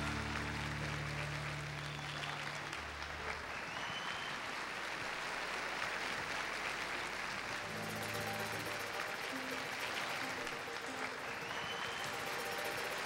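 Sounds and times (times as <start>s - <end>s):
band low notes: 0.0s - 1.9s
audience applauding: 0.0s - 13.0s.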